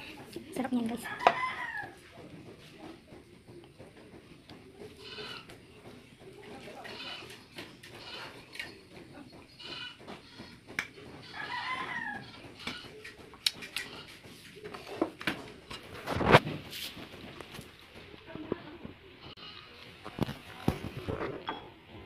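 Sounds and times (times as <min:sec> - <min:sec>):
chicken calling: 0:09.5 - 0:13.2.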